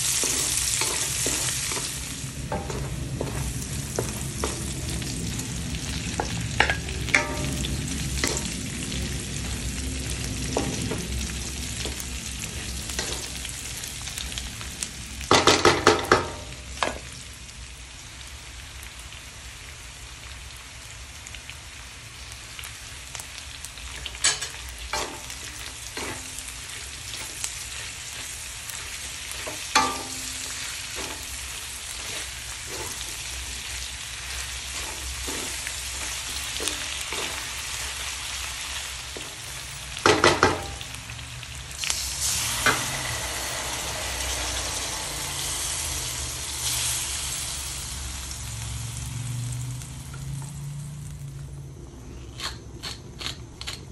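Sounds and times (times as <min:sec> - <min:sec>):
wooden spatula scraping: 0:00.0 - 0:05.5, 0:24.2 - 0:37.8
onions and meat sizzling in a wok: 0:00.0 - 0:53.2
spatula knocking on pan: 0:06.2 - 0:08.5.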